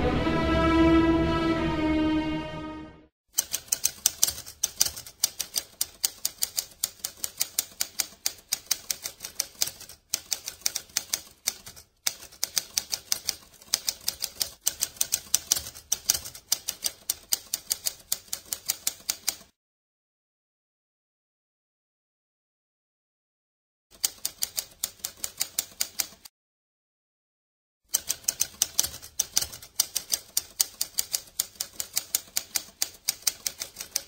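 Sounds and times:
music passage: 0:00.0 - 0:03.1
typewriter keys clacking: 0:03.4 - 0:19.5, 0:24.0 - 0:26.3, 0:27.9 - 0:34.0.

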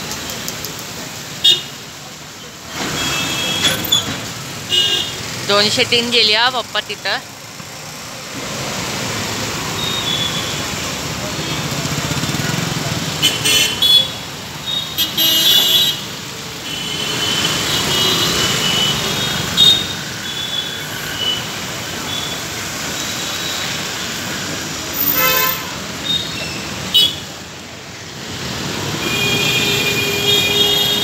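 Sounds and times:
bus passing: 0:00.0 - 0:31.0
tyres hissing on wet road: 0:00.0 - 0:31.0
vehicle horn honks: 0:25.0 - 0:25.8, 0:29.0 - 0:31.0.

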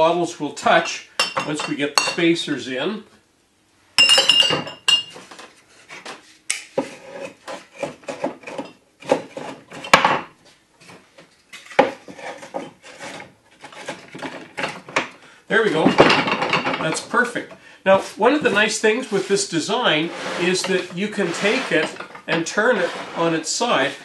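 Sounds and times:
glass bottles clinking: 0:01.2 - 0:02.2, 0:04.0 - 0:05.2, 0:15.8 - 0:17.1
wood knocking and scraping glass: 0:11.6 - 0:15.1, 0:20.1 - 0:23.3.

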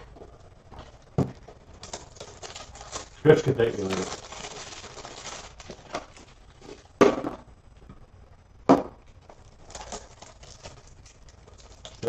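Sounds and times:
cellophane crinkling: 0:00.1 - 0:06.9, 0:09.0 - 0:12.0
sharp cellophane crackles: 0:01.4 - 0:06.9, 0:09.1 - 0:12.0.

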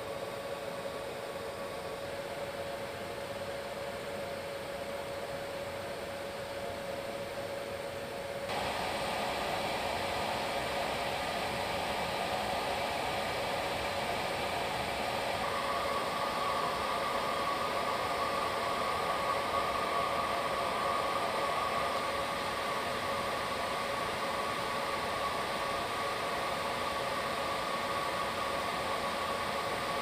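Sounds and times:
steady low hum: 0:00.0 - 0:30.0
high whine: 0:08.5 - 0:30.0
jet engines hissing: 0:08.5 - 0:30.0.

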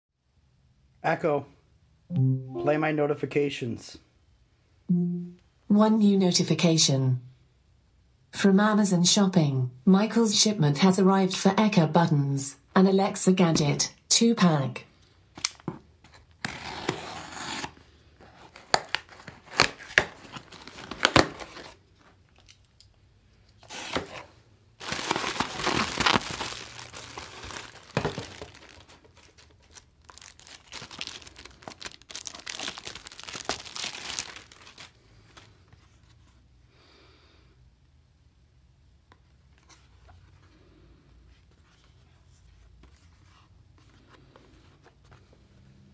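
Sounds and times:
packaging tearing and crinkling: 0:18.5 - 0:21.8, 0:24.8 - 0:35.0.

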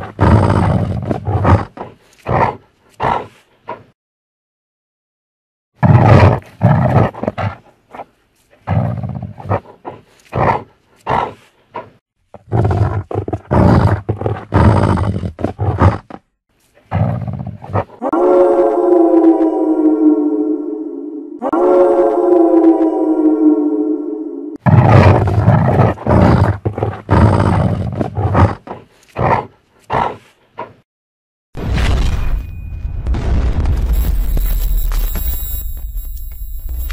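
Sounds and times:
monster roars: 0:18.0 - 0:28.6.

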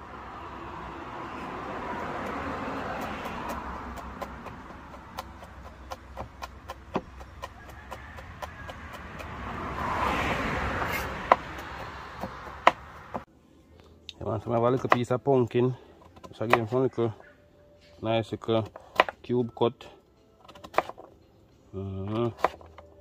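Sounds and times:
knife chopping on plastic board: 0:02.2 - 0:09.5, 0:10.9 - 0:13.2, 0:14.5 - 0:15.1, 0:18.6 - 0:19.2, 0:22.2 - 0:22.8.

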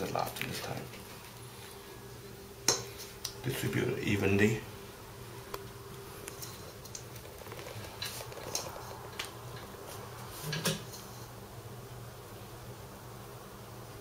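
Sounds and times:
faint steady hum: 0:00.0 - 0:14.0
scallions sprinkled onto dough: 0:05.4 - 0:11.4.

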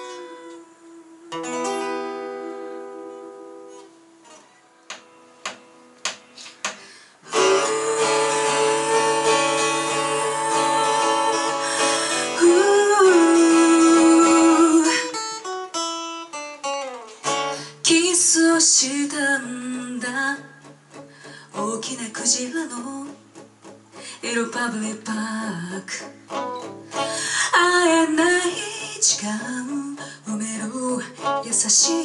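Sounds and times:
picked guitar notes: 0:00.0 - 0:17.9, 0:25.2 - 0:30.1
strummed acoustic guitar: 0:01.3 - 0:32.0
person singing: 0:07.2 - 0:15.4.

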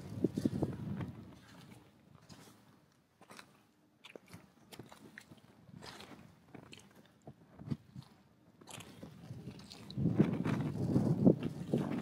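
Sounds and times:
footsteps crunching on beach: 0:00.0 - 0:07.1.

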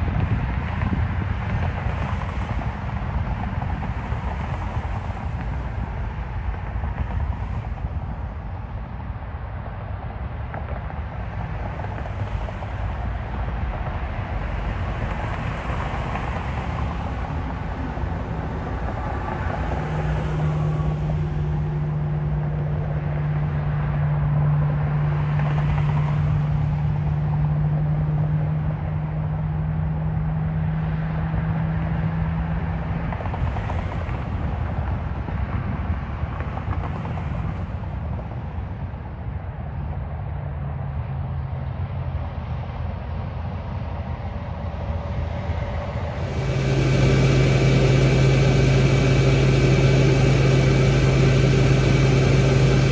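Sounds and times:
steady low hum: 0:00.0 - 0:29.1, 0:44.0 - 0:52.9
vehicles passing: 0:00.0 - 0:52.9.

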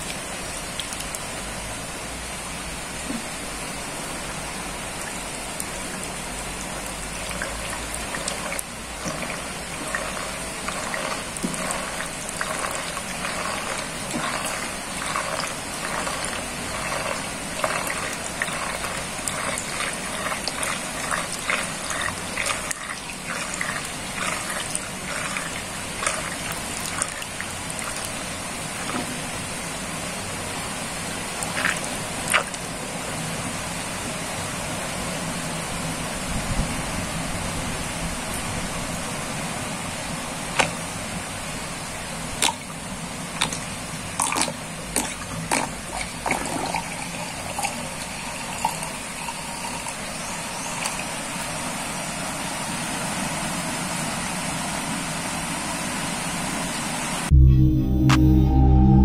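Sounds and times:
rain hissing: 0:00.0 - 0:32.3
water gurgling down sink drain: 0:04.2 - 0:29.4, 0:31.3 - 0:33.0, 0:43.4 - 0:51.6.

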